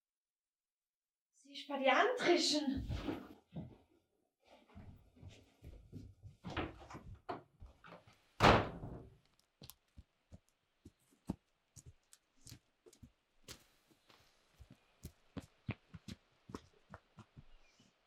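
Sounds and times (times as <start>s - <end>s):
knocking and rustling on wooden door: 5.8s - 7.6s, 8.4s - 9.1s
door slamming shut: 8.4s - 9.1s
footsteps running on forest floor: 9.6s - 17.9s.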